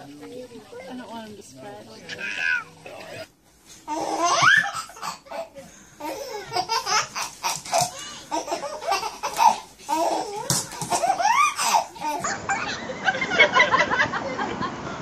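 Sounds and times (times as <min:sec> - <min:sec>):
baby laughing and squealing: 0:03.9 - 0:05.4, 0:06.1 - 0:12.8.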